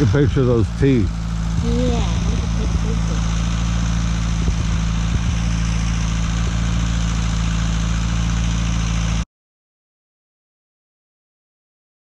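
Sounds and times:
engine droning steadily: 0:00.0 - 0:09.2.

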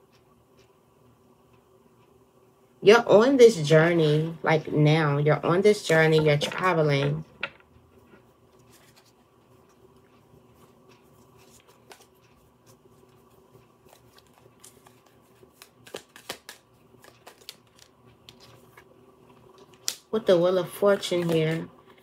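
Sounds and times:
cards being shuffled: 0:05.7 - 0:07.6, 0:08.6 - 0:09.2, 0:11.2 - 0:18.9, 0:20.8 - 0:21.7.

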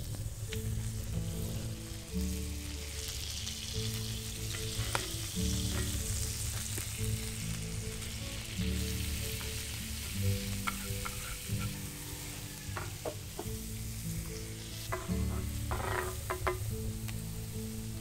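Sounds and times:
butter sizzling in a pan: 0:00.0 - 0:18.0
soft background music: 0:00.0 - 0:18.0
wooden spoon stirring: 0:03.9 - 0:16.7.

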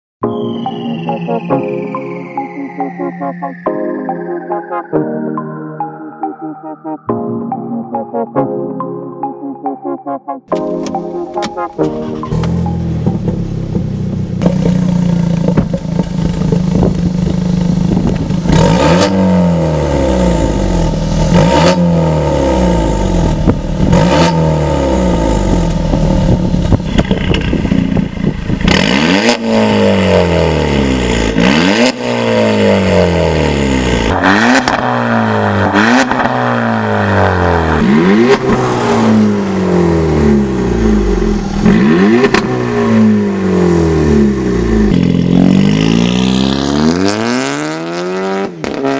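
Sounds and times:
car engine revving: 0:10.5 - 0:48.9.

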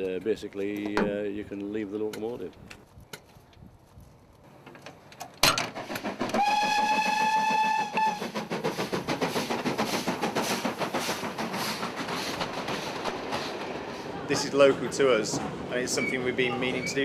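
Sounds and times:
steam locomotive chuffing: 0:05.6 - 0:17.0
steam locomotive whistle: 0:06.3 - 0:08.4.

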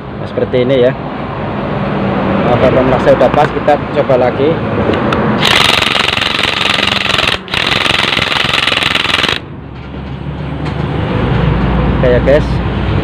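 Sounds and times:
impact wrench hammering: 0:05.4 - 0:09.5.

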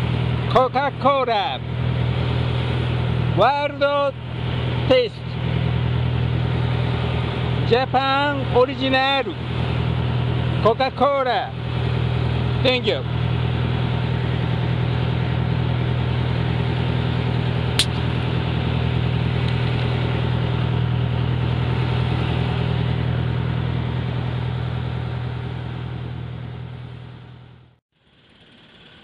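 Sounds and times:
water rushing along hull: 0:00.0 - 0:26.1
boat engine running: 0:00.0 - 0:29.0
sharp click: 0:17.8 - 0:18.0.

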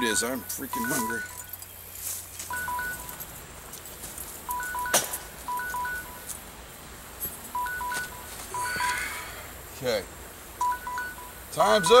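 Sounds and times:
timer alarm beeping: 0:00.0 - 0:01.5, 0:02.5 - 0:03.3, 0:04.4 - 0:06.3, 0:07.6 - 0:09.2, 0:10.6 - 0:12.0.

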